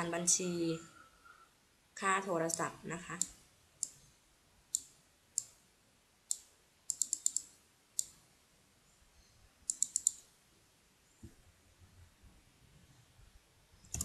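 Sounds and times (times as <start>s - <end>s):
computer mouse clicking: 2.5s - 4.0s, 4.7s - 5.6s, 6.3s - 8.2s, 9.6s - 10.3s.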